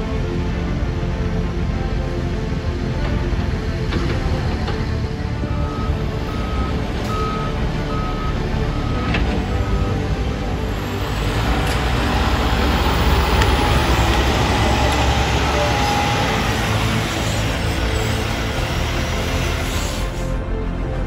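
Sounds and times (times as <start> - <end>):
truck diesel engine: 1.6 - 21.0
reversing alarm beeping: 5.5 - 10.1, 13.6 - 17.3.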